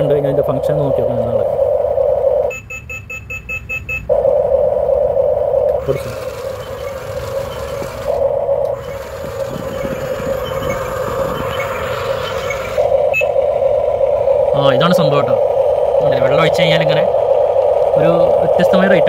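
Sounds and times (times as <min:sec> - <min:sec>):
steady electronic hum: 0:00.0 - 0:03.1, 0:03.8 - 0:19.0
toy motors whirring: 0:05.8 - 0:13.3.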